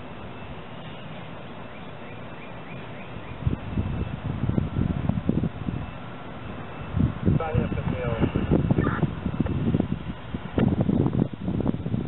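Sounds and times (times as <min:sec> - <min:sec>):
wind buffeting microphone: 0:03.2 - 0:12.0.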